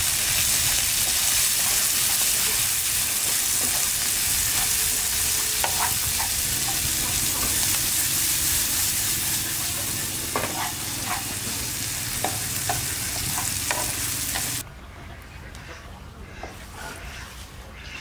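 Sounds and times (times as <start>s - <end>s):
larvae sizzling in oil: 0.0s - 14.6s
chopsticks knocking a pan: 12.2s - 14.6s.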